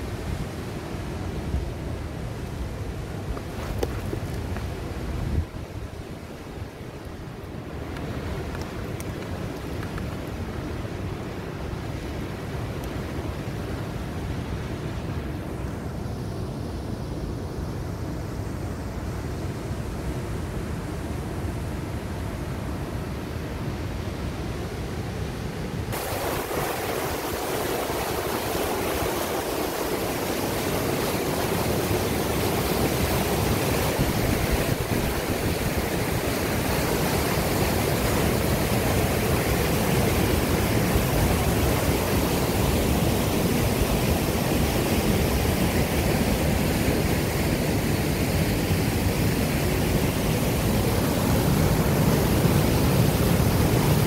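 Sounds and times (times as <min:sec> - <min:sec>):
waterfall roar: 0:25.6 - 0:54.0.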